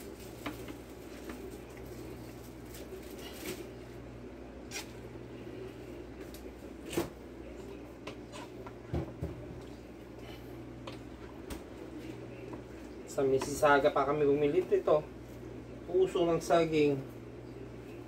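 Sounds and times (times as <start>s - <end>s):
wooden spoon stirring in pot: 6.6s - 16.4s.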